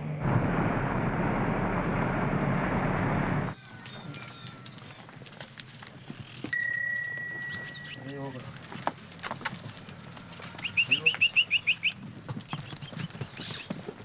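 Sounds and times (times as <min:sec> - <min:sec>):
car tyres on gravel road: 0:00.0 - 0:14.0
goats moving about: 0:03.5 - 0:14.0.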